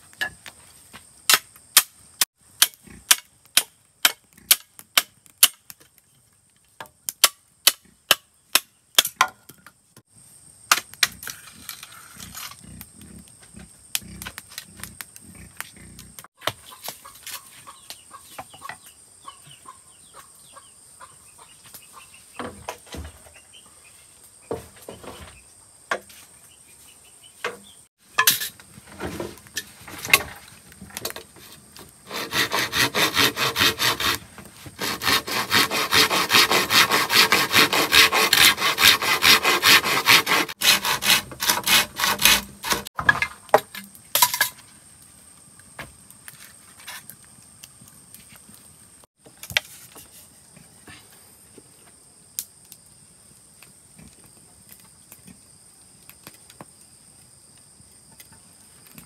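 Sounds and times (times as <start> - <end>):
hand saw cutting bamboo: 32.0 - 43.0.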